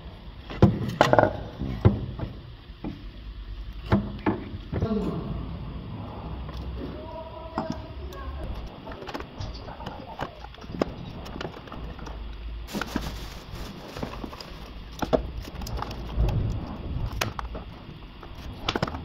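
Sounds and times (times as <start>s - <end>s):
low rumble: 5.0s - 7.3s
hands handling car parts: 12.7s - 16.0s.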